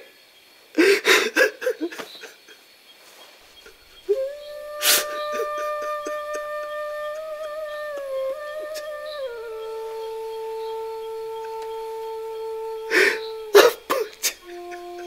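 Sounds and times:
man sobbing: 0:04.6 - 0:09.0, 0:12.8 - 0:15.0.

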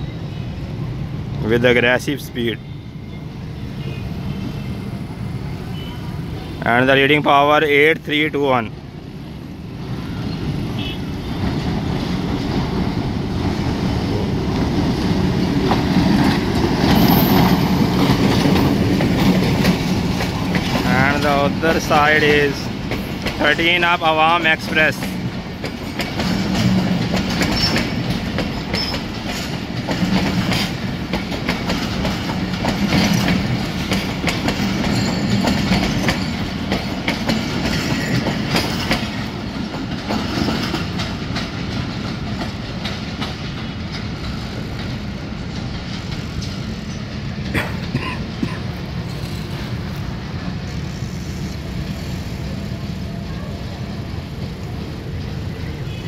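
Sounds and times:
train rumbling: 0:00.0 - 0:56.0
train wheels clicking over rail joints: 0:11.3 - 0:56.0.

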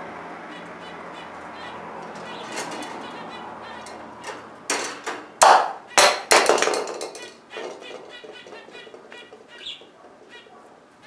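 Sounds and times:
budgerigar chattering: 0:00.5 - 0:04.3, 0:07.5 - 0:10.6
plastic toy knocking on wire cage: 0:02.0 - 0:03.0, 0:03.8 - 0:10.3.

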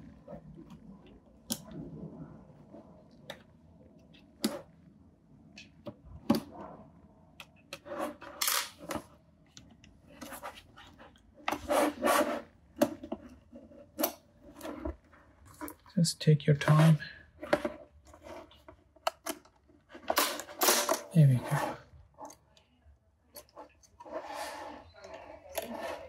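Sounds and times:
plastic scraping and rubbing: 0:07.6 - 0:09.2, 0:10.0 - 0:15.9, 0:16.6 - 0:22.5, 0:23.4 - 0:26.0.

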